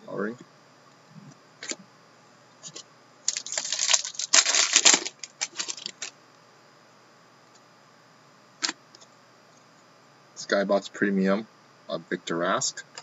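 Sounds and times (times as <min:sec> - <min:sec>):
trading cards clicking and rustling: 0:03.3 - 0:06.1.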